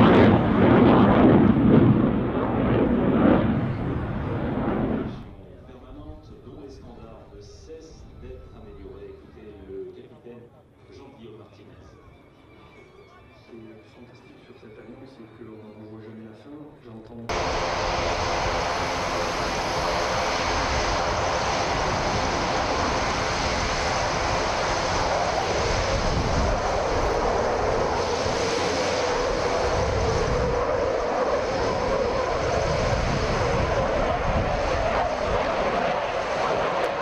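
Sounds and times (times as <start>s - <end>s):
fighter jet roar: 0.0s - 5.6s, 17.3s - 37.0s.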